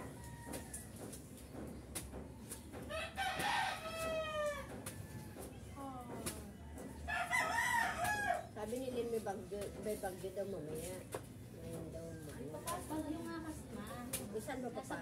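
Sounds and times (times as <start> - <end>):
rooster crowing: 0.0 - 1.0, 2.9 - 5.4, 7.0 - 8.5.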